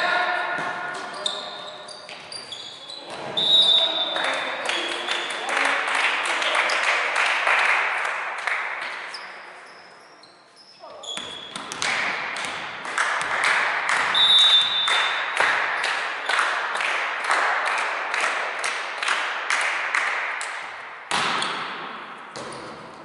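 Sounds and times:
referee's whistle: 3.4 - 4.1, 14.1 - 15.2
rhythmic clapping in unison: 4.1 - 9.1, 11.7 - 21.3.

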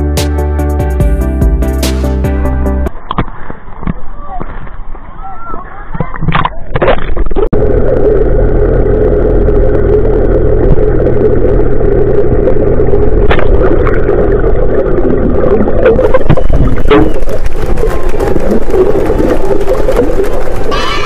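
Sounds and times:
muffled underwater rumble: 5.8 - 21.0
low motor hum underwater: 7.2 - 21.0.

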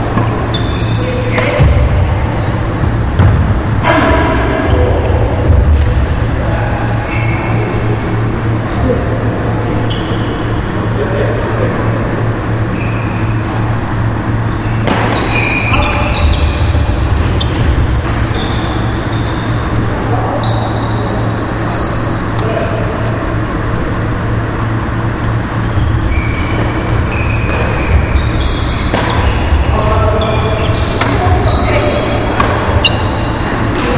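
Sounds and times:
steady low hum: 0.0 - 33.9
shoes squeaking on wooden court: 0.1 - 3.4, 7.0 - 7.7, 9.8 - 10.6, 12.6 - 19.7, 20.3 - 22.5, 25.1 - 33.9
racket striking shuttlecock: 14.8 - 15.4, 28.7 - 29.3, 30.9 - 31.6, 32.3 - 33.0.

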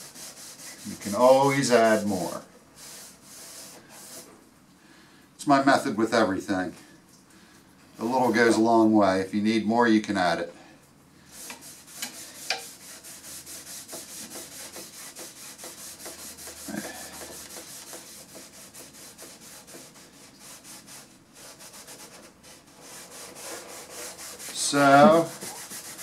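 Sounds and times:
rag rubbing on wood: 0.0 - 4.4, 11.3 - 26.0.

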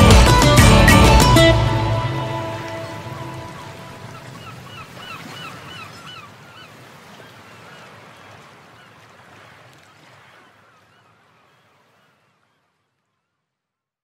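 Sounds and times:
surf washing: 0.0 - 12.8
gull calls: 2.4 - 8.0.

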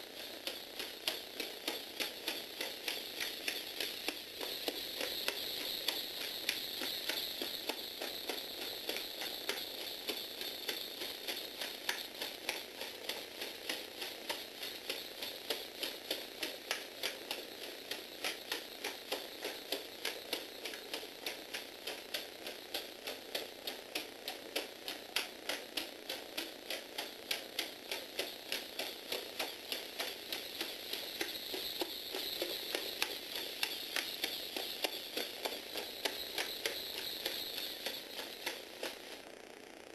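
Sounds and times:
motor and gears whirring: 0.2 - 22.3, 26.1 - 39.4
plastic feet clicking on wooden floor: 0.4 - 9.9, 10.6 - 39.0.

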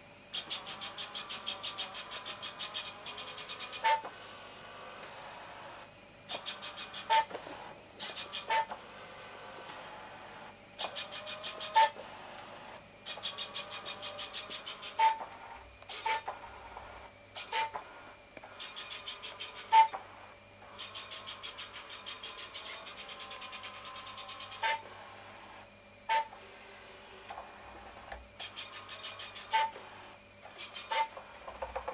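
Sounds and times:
robot rover rapid ticking: 0.3 - 4.0, 6.3 - 7.4, 13.1 - 15.2, 18.5 - 19.9, 20.7 - 24.8.

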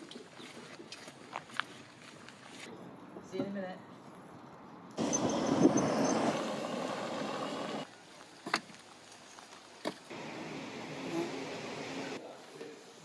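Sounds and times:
utility buggy driving: 5.0 - 7.9, 10.1 - 12.2.

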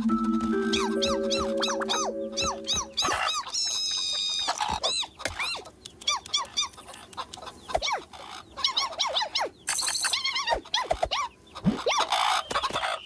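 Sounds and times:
background music note: 0.0 - 3.4.

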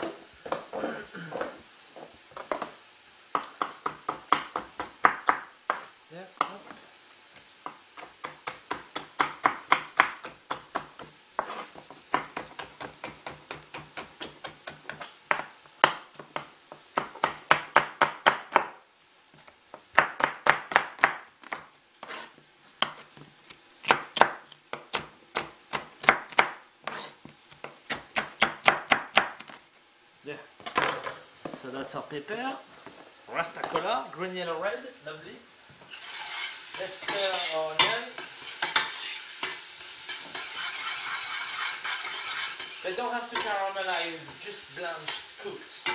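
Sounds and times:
knife slicing on wooden board: 11.4 - 11.8, 21.5 - 23.1, 26.8 - 27.2.

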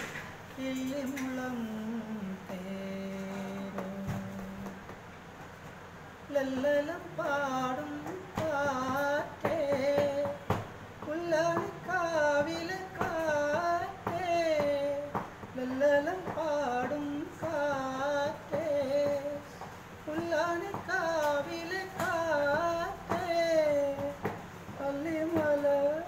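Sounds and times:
man singing unaccompanied: 0.0 - 5.0, 6.2 - 26.0.

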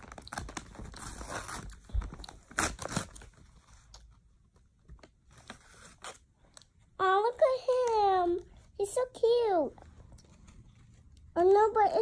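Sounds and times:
paper envelope tearing: 0.0 - 3.4.

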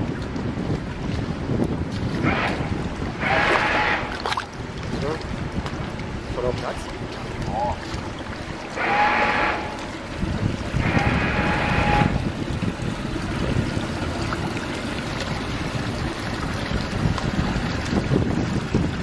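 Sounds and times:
water lapping: 0.0 - 19.0
wind buffeting microphone: 0.0 - 19.0.

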